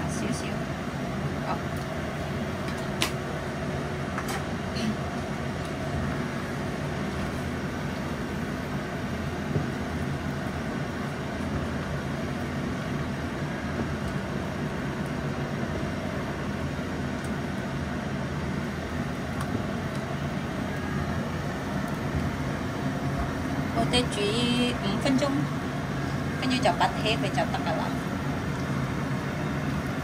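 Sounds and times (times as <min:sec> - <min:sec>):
water boiling in a pot: 0:00.0 - 0:30.0.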